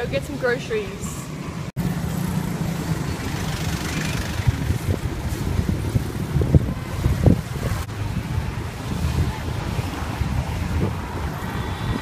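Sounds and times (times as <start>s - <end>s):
city traffic: 0.0s - 12.0s
motorbike engine rumble: 1.8s - 12.0s
wind buffeting microphone: 3.2s - 12.0s.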